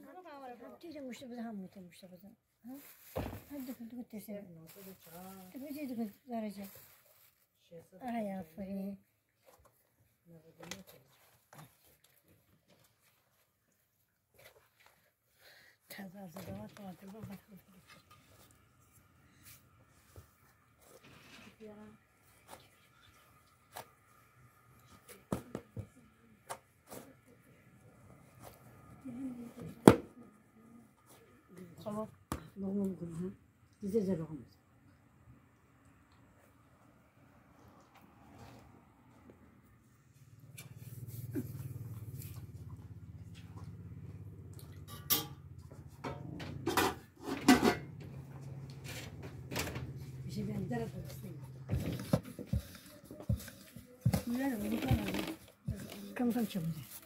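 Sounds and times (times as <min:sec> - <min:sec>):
dishes and metal tray clinking: 0:44.9 - 0:45.5, 0:46.1 - 0:48.1.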